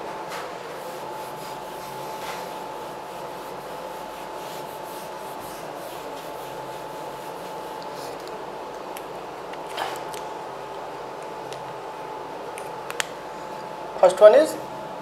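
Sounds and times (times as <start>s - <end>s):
duster rubbing on whiteboard: 0.7s - 8.2s.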